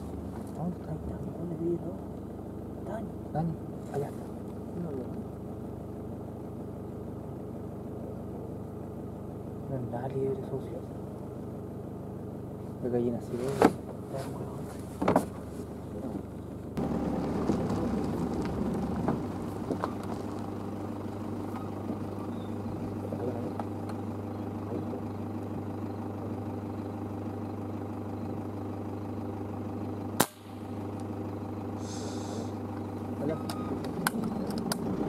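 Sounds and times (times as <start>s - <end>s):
pickup truck engine humming: 0.0s - 13.2s, 13.8s - 35.0s
sharp crack: 30.2s - 30.7s.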